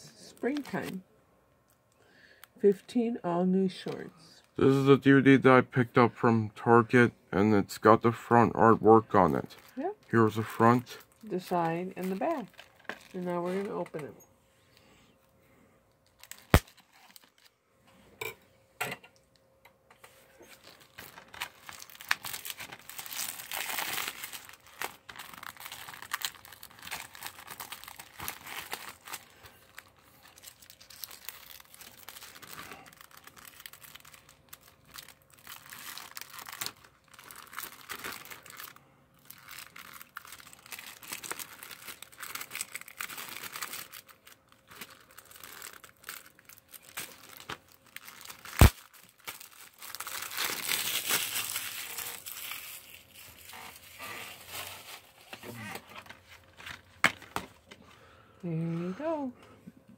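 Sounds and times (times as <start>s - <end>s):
plastic wrap crinkling: 0.2s - 1.0s, 9.2s - 14.0s, 16.0s - 17.6s, 20.3s - 57.4s.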